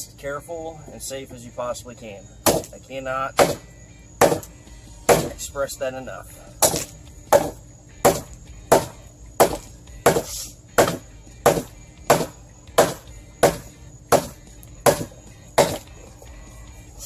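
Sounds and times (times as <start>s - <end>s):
hatchet chopping into log: 2.4s - 2.8s, 3.4s - 5.4s, 6.6s - 15.9s.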